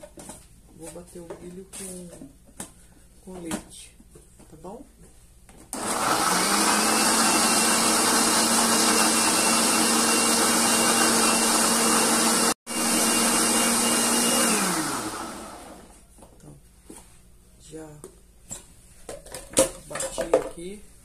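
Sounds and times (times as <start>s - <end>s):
electric blender motor whine: 5.8s - 16.0s.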